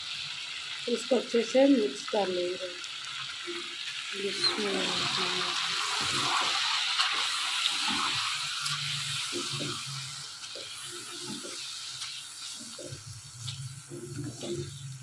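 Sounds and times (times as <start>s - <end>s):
chicken sizzling in hot oil: 0.0s - 15.0s
spatula stirring in wok: 4.4s - 15.0s.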